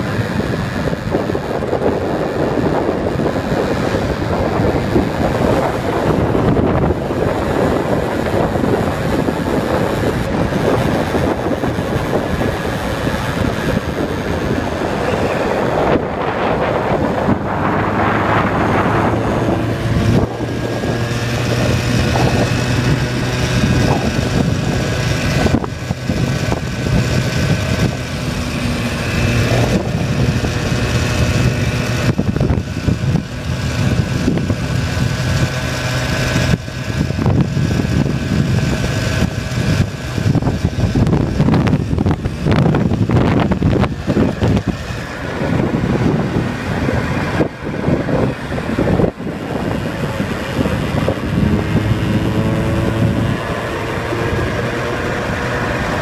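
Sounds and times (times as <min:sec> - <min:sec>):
vehicle engine hum: 0:00.0 - 0:56.0
wind noise on microphone: 0:00.0 - 0:56.0.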